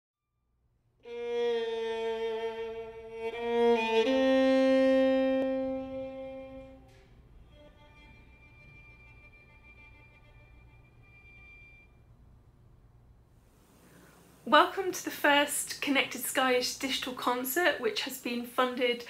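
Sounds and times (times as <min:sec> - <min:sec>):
bowed string instrument: 0:01.0 - 0:12.3.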